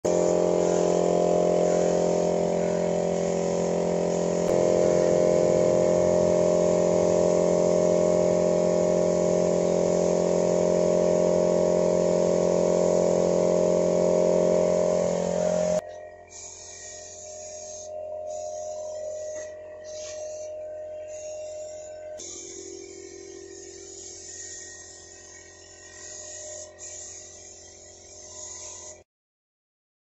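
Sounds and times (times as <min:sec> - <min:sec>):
air compressor humming: 0:00.0 - 0:29.0
spray gun hissing: 0:00.0 - 0:29.0.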